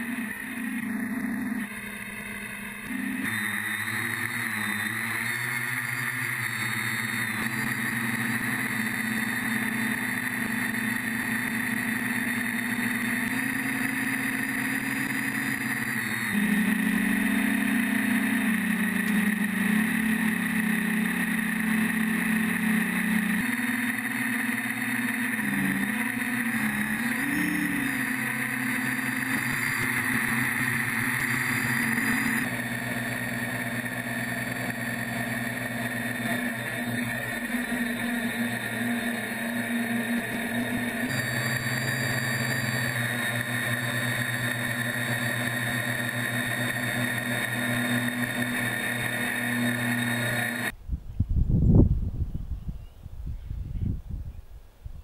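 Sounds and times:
drone propellers whining: 0:00.0 - 0:50.8.

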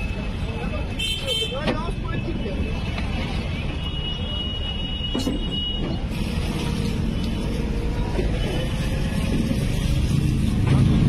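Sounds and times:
fire truck engine rumbling: 0:05.1 - 0:11.0.

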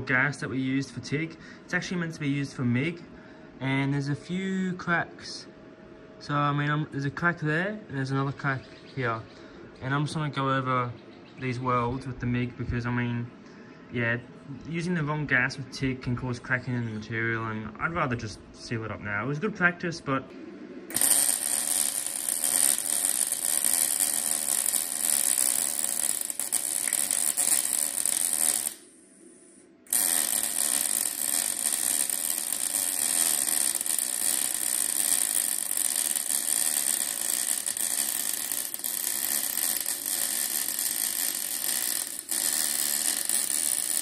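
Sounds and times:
welder crackling sizzle: 0:20.9 - 0:44.0.

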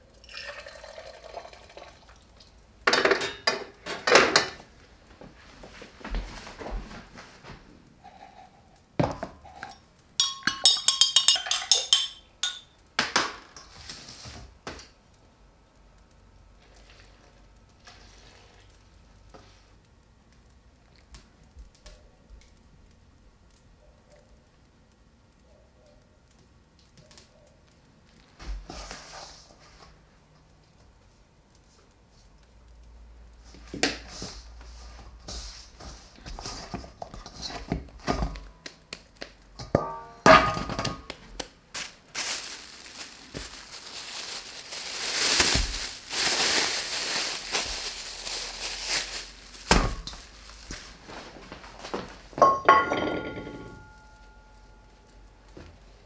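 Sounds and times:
metal utensils and dishes clinking: 0:02.9 - 0:04.6, 0:09.4 - 0:12.8, 0:39.6 - 0:41.1, 0:52.4 - 0:54.7
rustling: 0:41.0 - 0:52.4.

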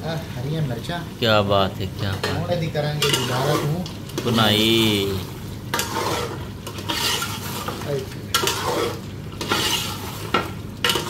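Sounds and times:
meat sizzling in a pot: 0:00.0 - 0:11.0
steel ladle scraping a pot: 0:03.0 - 0:03.8, 0:05.7 - 0:11.0.

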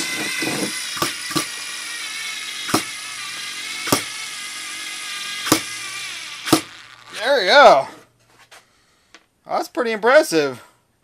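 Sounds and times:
cordless screwdriver whine: 0:00.0 - 0:07.6.

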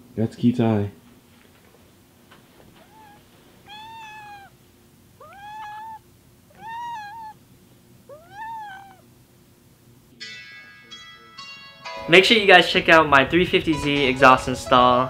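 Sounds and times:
cat meowing: 0:02.7 - 0:04.6, 0:05.2 - 0:07.4, 0:08.1 - 0:09.1.

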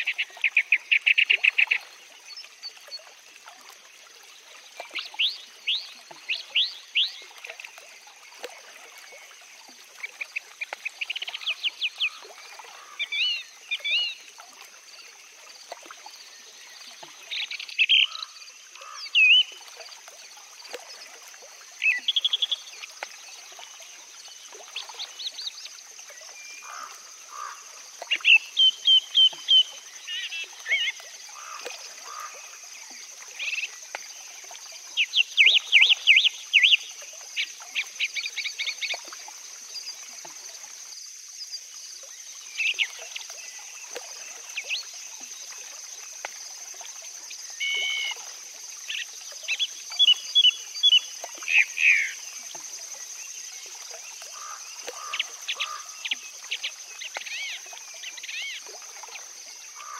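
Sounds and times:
songbirds singing: 0:54.4 - 0:58.6.

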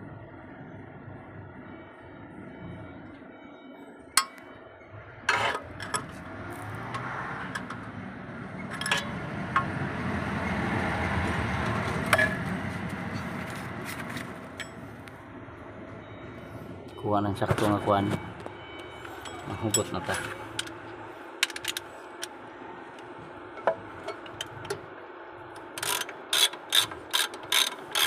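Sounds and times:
metal clinks and taps: 0:04.2 - 0:04.4, 0:08.7 - 0:09.7, 0:23.6 - 0:24.8.

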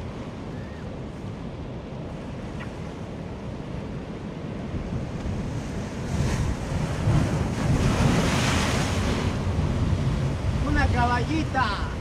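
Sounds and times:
wind buffeting microphone: 0:00.0 - 0:12.0
surf breaking on rocks: 0:05.9 - 0:11.8.

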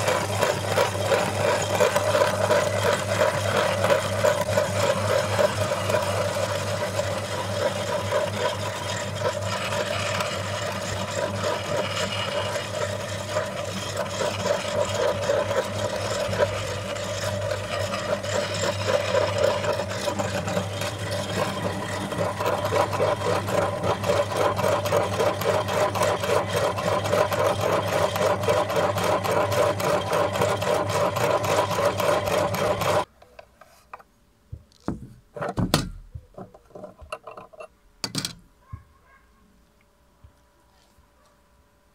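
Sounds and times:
cookies being ground rasping: 0:00.0 - 0:33.1
meat grinder humming: 0:00.0 - 0:33.1.

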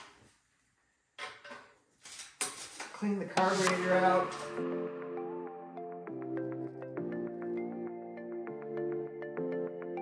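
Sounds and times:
music with held chords: 0:03.8 - 0:10.0.

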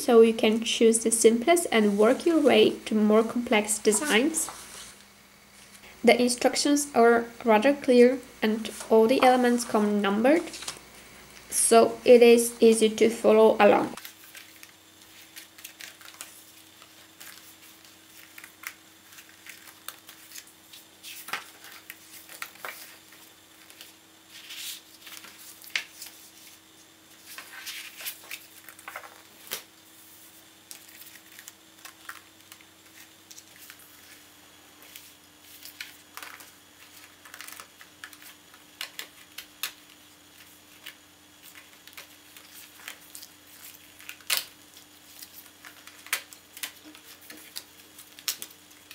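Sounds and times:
faint steady hum: 0:00.0 - 0:48.9
paper rustling and tapping: 0:27.3 - 0:29.7, 0:34.8 - 0:44.5.

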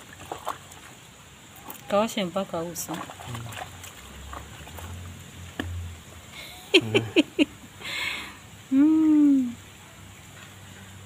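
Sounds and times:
water splash: 0:00.0 - 0:06.0.

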